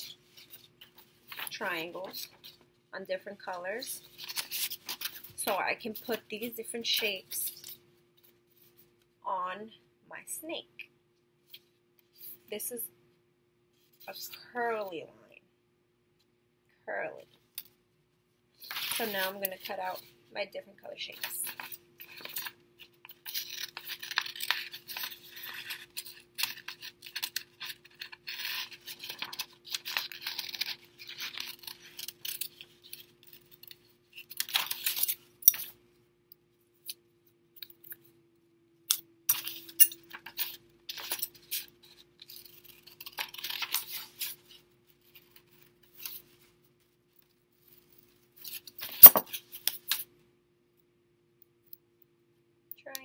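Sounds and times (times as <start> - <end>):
paper rustling: 4.0 - 5.4, 18.6 - 19.3, 21.2 - 35.2, 40.2 - 49.7.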